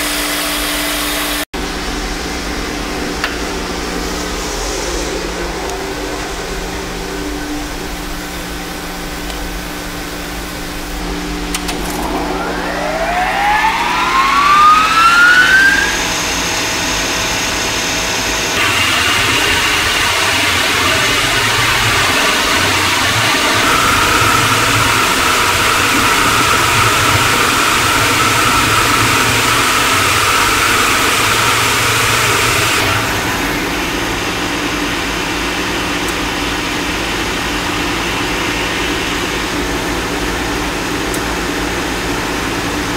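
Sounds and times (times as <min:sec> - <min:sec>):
burner blower whine: 0:00.0 - 0:42.9
rush of burner air and firing: 0:09.7 - 0:16.4.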